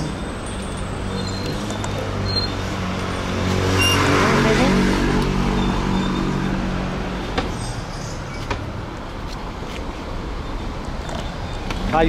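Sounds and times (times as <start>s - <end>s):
passing car engine: 0.0s - 8.1s
street noise: 0.0s - 12.0s.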